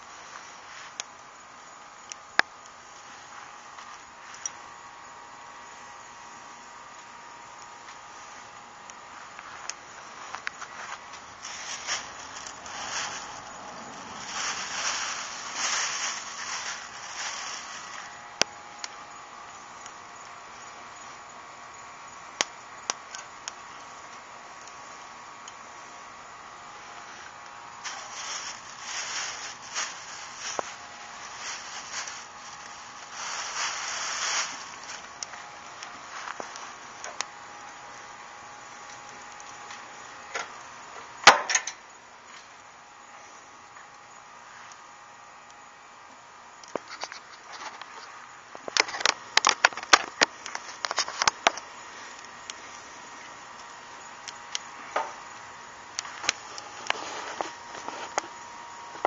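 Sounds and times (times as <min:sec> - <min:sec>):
faint grill hiss: 0:00.0 - 0:59.0
plastic bag rustling: 0:09.4 - 0:18.4, 0:27.7 - 0:36.9, 0:56.1 - 0:58.4
charcoal grill pops and clicks: 0:22.4 - 0:24.8, 0:41.2 - 0:41.8, 0:48.5 - 0:52.6.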